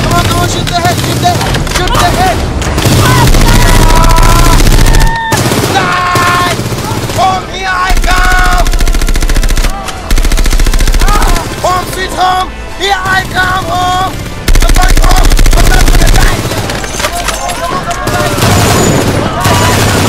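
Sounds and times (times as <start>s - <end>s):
automatic rifle fire: 7.9s - 11.4s, 14.4s - 16.9s.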